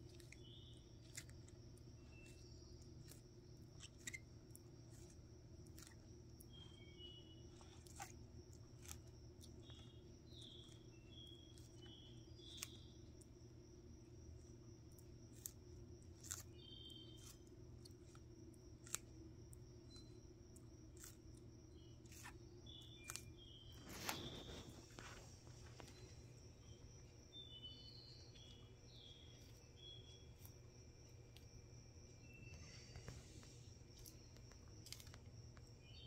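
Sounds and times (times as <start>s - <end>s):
low steady hum: 0.0s - 36.0s
tortoise crunching lettuce: 0.0s - 36.0s.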